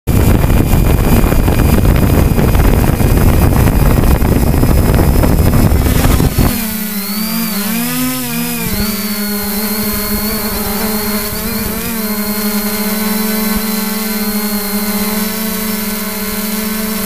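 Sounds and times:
wind buffeting microphone: 0.1s - 7.9s, 8.5s - 12.9s
droning tone with wavering pitch: 0.1s - 17.0s.

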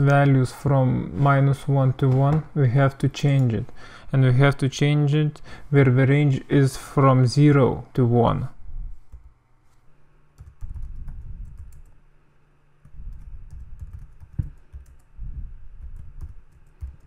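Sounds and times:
typing on computer keyboard: 10.4s - 11.9s, 13.1s - 15.1s, 15.8s - 17.0s.

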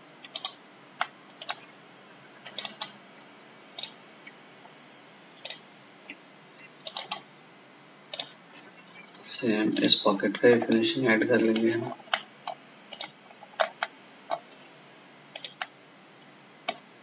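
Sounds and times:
computer mouse clicks: 0.2s - 1.7s, 2.4s - 3.0s, 3.8s - 4.0s, 5.4s - 6.2s, 6.8s - 7.2s, 8.1s - 8.4s, 10.6s - 14.5s, 15.3s - 15.7s, 16.6s - 16.8s.

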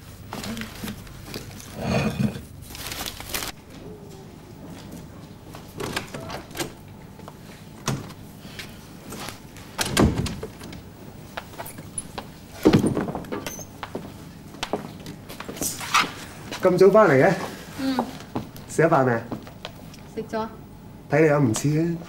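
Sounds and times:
door opening and closing: 9.7s - 10.8s, 11.6s - 13.8s.

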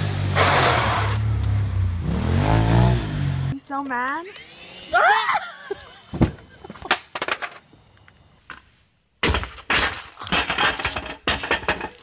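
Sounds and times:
sharp knocks and thumps: 6.1s - 7.6s, 9.2s - 12.0s
clattering crashes: 9.2s - 12.0s.

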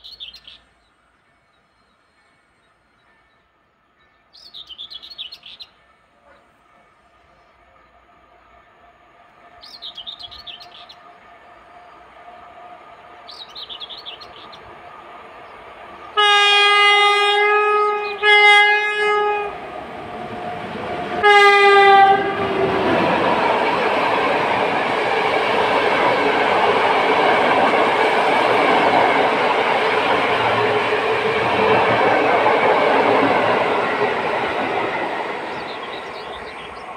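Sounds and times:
electric locomotive humming: 5.2s - 36.9s
birds chirping: 9.4s - 16.2s, 22.6s - 36.9s
train horn blasts: 16.1s - 19.7s, 21.2s - 22.8s.

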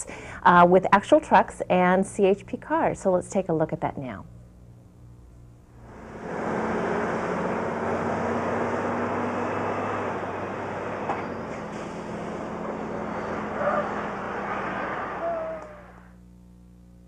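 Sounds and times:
road vehicles rumbling: 5.8s - 16.1s
high whistle-like tone: 15.1s - 16.1s.

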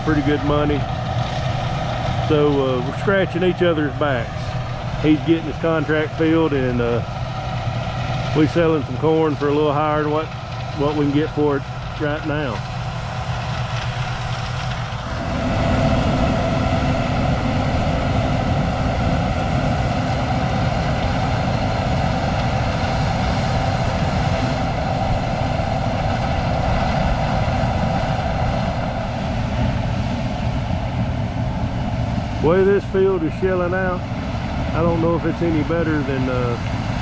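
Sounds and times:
combine harvester humming: 0.0s - 37.0s.

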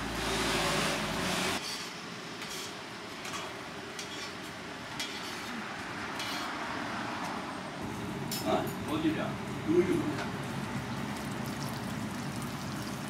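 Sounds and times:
frying hiss: 8.9s - 13.0s.

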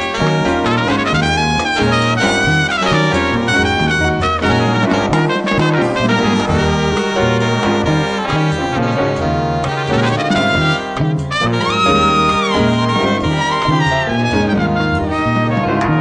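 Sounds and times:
piano: 0.0s - 16.0s
saxophone: 0.0s - 16.0s
trombone: 0.0s - 16.0s
trumpet: 0.0s - 16.0s
tuba bass line: 0.0s - 16.0s.

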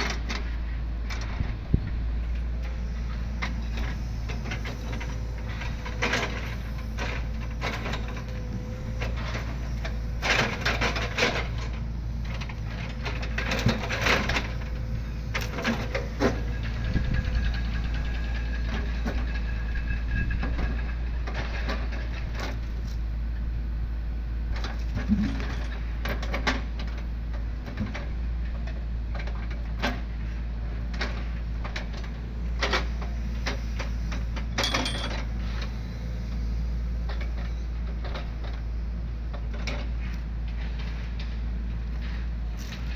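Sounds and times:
excavator engine droning: 0.0s - 42.9s.

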